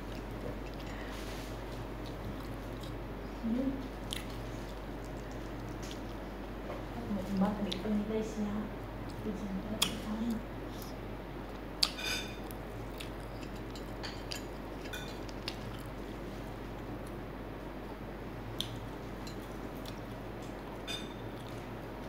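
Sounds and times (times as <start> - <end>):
crisp crunching and chewing: 0.0 - 3.0, 4.0 - 6.3, 10.7 - 16.1.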